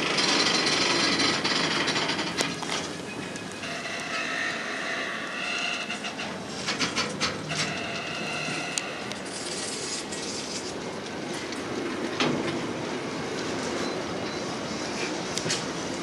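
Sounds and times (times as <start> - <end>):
train wheels clacking over rail joints: 0.0 - 14.0
high wheel squeal: 3.0 - 6.6, 7.4 - 10.6.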